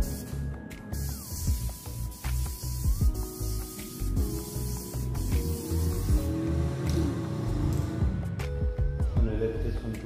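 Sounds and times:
heavy bass beat: 1.3s - 6.9s.

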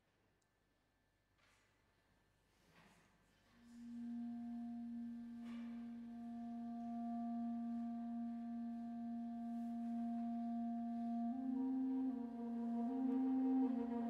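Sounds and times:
chamber ensemble held note: 6.2s - 14.0s.

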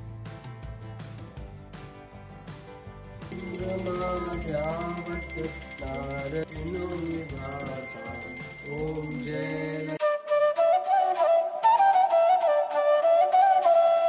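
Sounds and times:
steady high ringing: 3.3s - 10.0s
solo flute melody: 10.0s - 14.0s.

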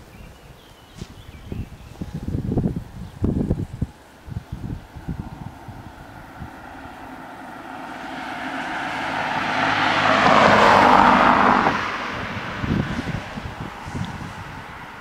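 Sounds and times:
car driving past: 4.6s - 15.0s.

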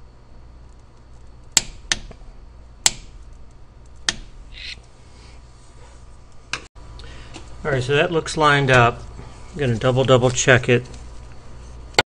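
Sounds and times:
steady low hum: 0.0s - 12.0s
metal scrape: 4.5s - 6.0s.

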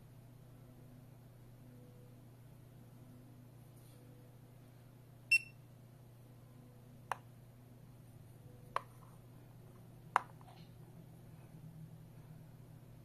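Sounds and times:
high electronic keypad beep: 5.3s - 5.6s.

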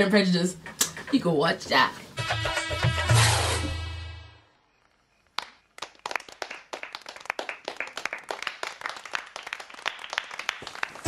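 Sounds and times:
group clapping: 5.3s - 11.0s.

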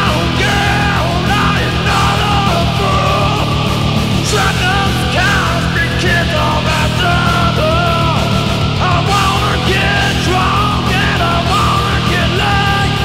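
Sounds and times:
death metal song: 0.0s - 13.0s
distorted guitars and drums: 0.0s - 13.0s.

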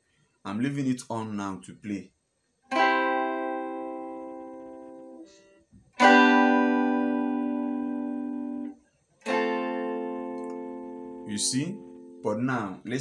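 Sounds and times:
clean guitar chords: 2.7s - 5.4s, 6.0s - 13.0s.

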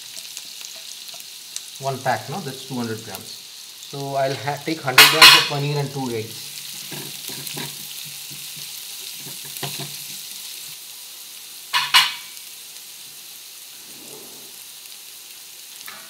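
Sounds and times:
onion sizzling in a frying pan: 0.0s - 16.0s
spatula scraping a pan: 6.8s - 10.2s, 11.8s - 12.4s.

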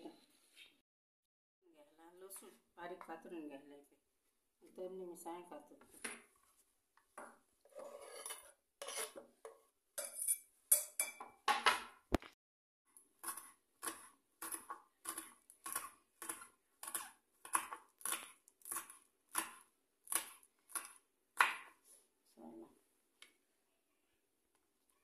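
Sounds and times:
knife scraping into glass bowl: 7.7s - 9.2s, 10.0s - 11.2s
clinks on glass bowl: 10.0s - 11.4s.

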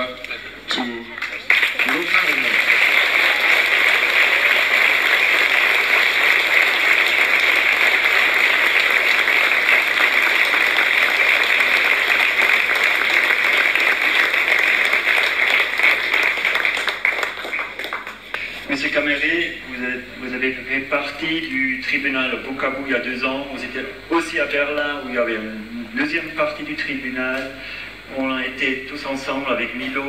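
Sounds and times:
audience applauding: 0.7s - 18.6s.

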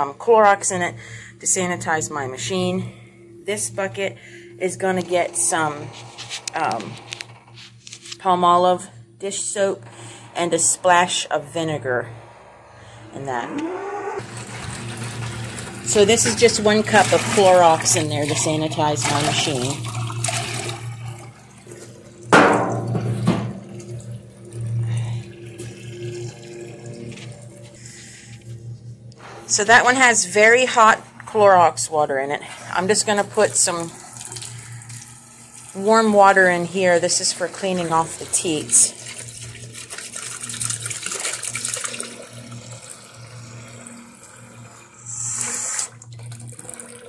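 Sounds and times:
steady low hum: 0.0s - 40.4s
water running into plastic bucket: 14.2s - 27.8s, 32.7s - 47.0s.

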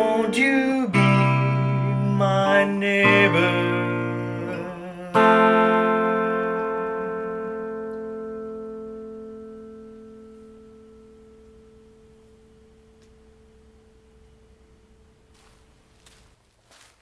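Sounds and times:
guitar chord ringing out: 0.0s - 16.0s.

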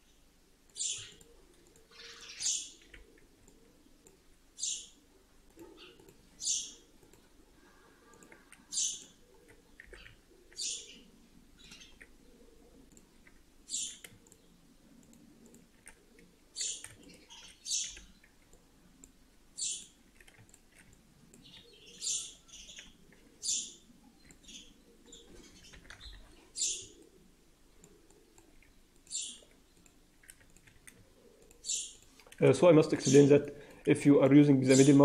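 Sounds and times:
computer mouse clicks: 0.7s - 4.2s, 5.4s - 7.3s, 8.1s - 10.9s, 11.6s - 23.3s, 24.2s - 27.2s, 27.8s - 32.4s.

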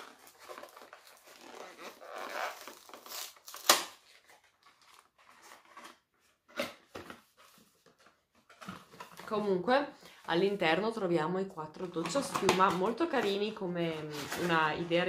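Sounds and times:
cardboard box crinkling and tearing: 0.0s - 7.3s.

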